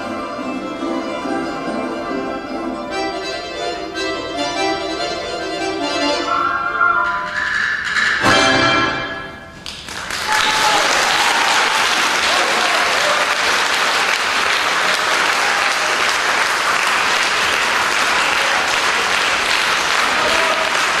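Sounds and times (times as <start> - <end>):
audience applauding: 9.6 - 21.0.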